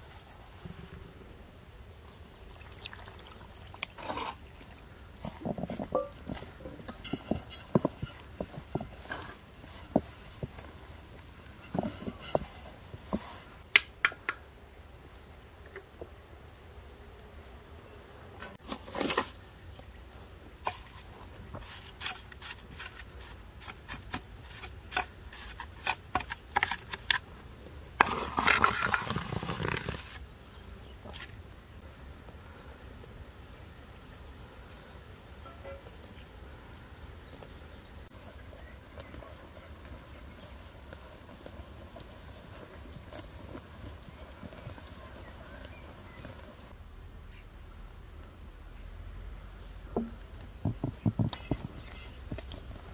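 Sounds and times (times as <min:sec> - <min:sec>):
insects buzzing: 0:00.0 - 0:52.9
trowel scraping on mortar and bricks: 0:03.9 - 0:13.6, 0:20.6 - 0:27.3, 0:28.0 - 0:30.2.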